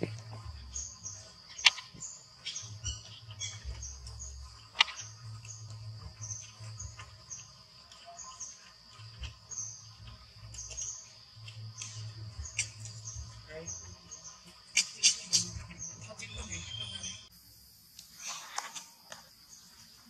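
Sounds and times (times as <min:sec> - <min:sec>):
sharp clicks: 0:01.5 - 0:02.6.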